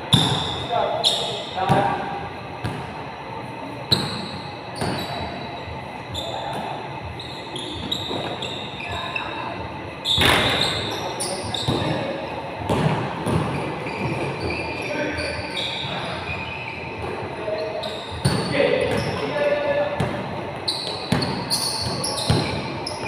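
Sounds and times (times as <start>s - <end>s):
basketball bouncing in echoing hall: 0.0s - 3.0s, 3.9s - 5.4s, 10.0s - 17.2s, 17.8s - 23.0s.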